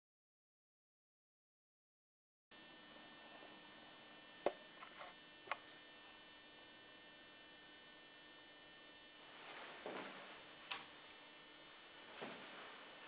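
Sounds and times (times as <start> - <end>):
electrical hum: 2.5 - 13.0.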